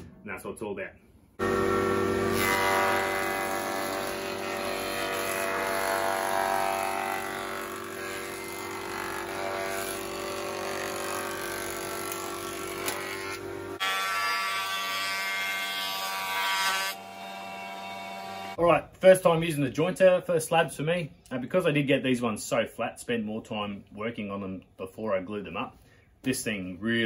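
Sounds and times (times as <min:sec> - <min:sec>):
jointer motor whine: 0:01.4 - 0:13.8
knives planing wood: 0:01.4 - 0:18.6.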